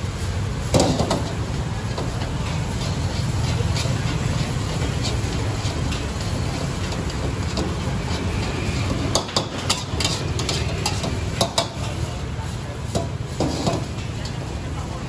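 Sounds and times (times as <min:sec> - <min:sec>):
gas burner rumble: 0:00.0 - 0:15.0
spatula clanking on wok: 0:00.7 - 0:12.0
spatula scraping noodles in wok: 0:01.4 - 0:12.0, 0:13.0 - 0:14.4.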